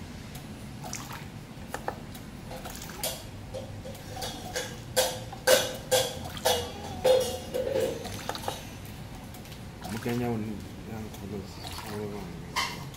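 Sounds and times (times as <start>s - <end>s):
glass bottle clinking: 4.2s - 8.2s.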